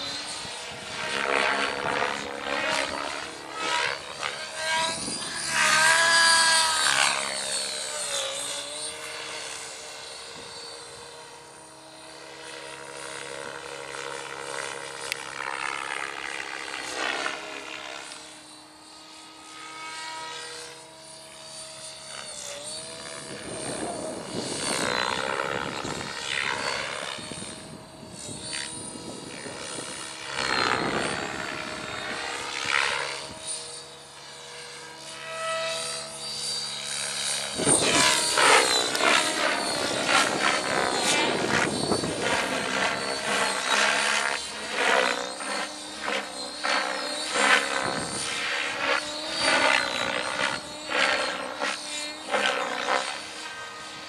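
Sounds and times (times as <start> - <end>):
electric motor whining: 0.0 - 54.0
rotor blades whooshing: 34.7 - 53.7.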